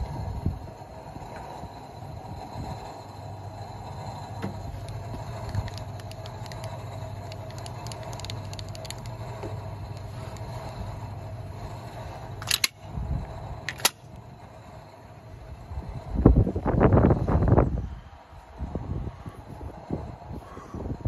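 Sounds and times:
milling machine humming: 0.0s - 17.7s
sharp clicks: 4.4s - 10.8s, 12.4s - 12.8s, 13.6s - 14.2s
light metallic ticks: 4.5s - 10.8s.

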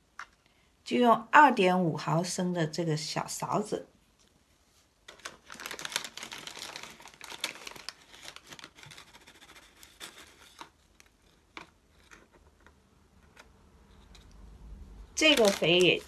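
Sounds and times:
plastic bag crinkling: 5.0s - 11.5s, 15.1s - 16.0s.

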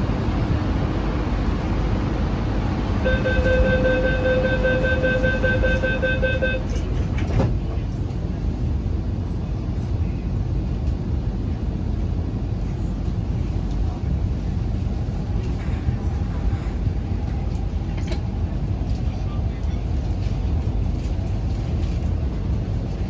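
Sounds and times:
train low rumble: 0.0s - 23.0s
door-closing warning beeps: 3.1s - 6.8s.

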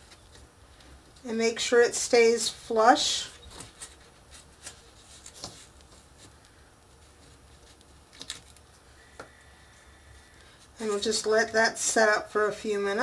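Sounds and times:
paper and chipboard rustling: 3.0s - 8.8s.

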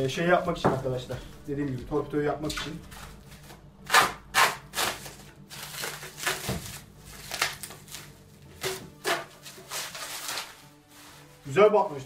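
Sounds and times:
plastic bag crinkling and ripping: 2.7s - 12.0s.

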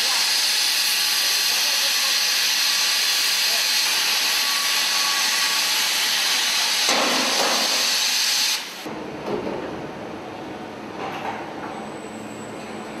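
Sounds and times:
loud high welding hiss: 0.0s - 8.9s
factory machinery noise: 0.0s - 13.0s.

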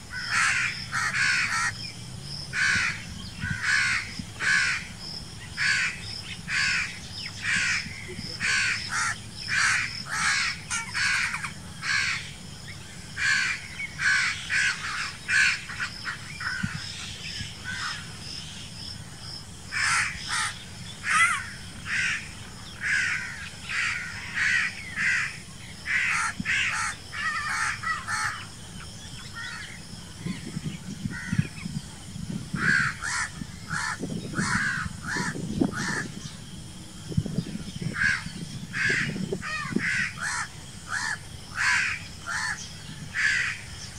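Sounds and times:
crow cawing: 0.1s - 1.8s, 2.6s - 4.9s, 5.6s - 12.3s, 13.2s - 16.8s, 17.6s - 18.1s, 19.7s - 28.5s, 32.6s - 36.1s, 37.9s - 43.6s.

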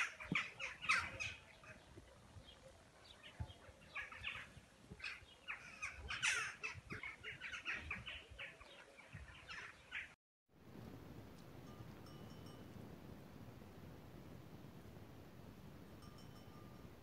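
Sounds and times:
small birds chirping: 0.0s - 10.2s.

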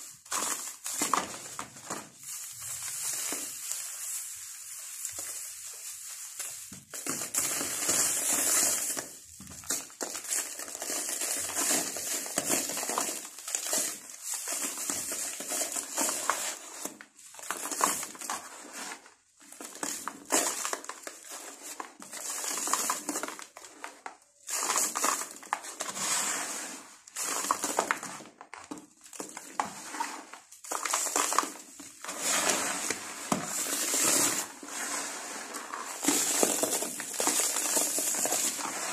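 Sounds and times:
sand-cement lumps crunching in hands: 0.8s - 8.5s.

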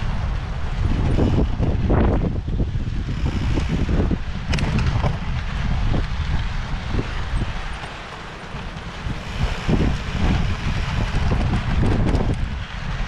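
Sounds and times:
bike knocking and rattling: 0.0s - 13.0s
wind rumbling on microphone: 0.0s - 13.0s.

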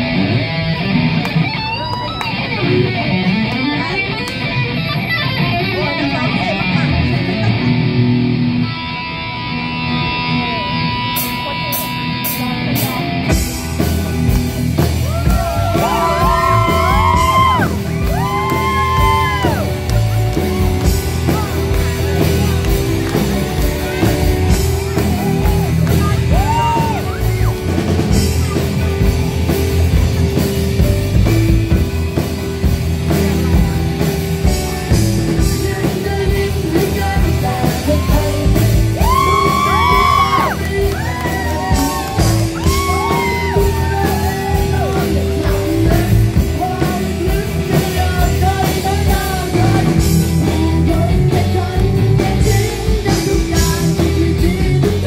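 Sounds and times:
rock band playing: 0.0s - 55.0s
person singing: 14.8s - 29.1s, 33.1s - 55.0s.

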